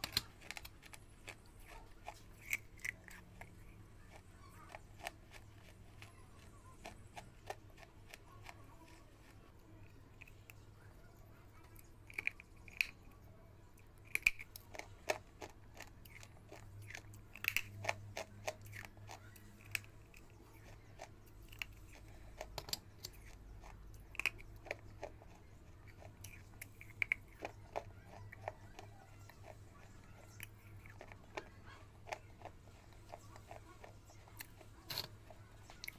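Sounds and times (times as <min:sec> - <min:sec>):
crunchy chewing: 0:00.0 - 0:35.9
faint low hum: 0:00.0 - 0:35.9.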